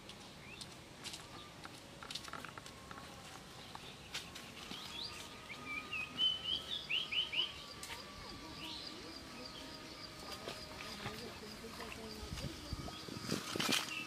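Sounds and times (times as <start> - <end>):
songbird chirping and whistling: 4.7 - 7.9.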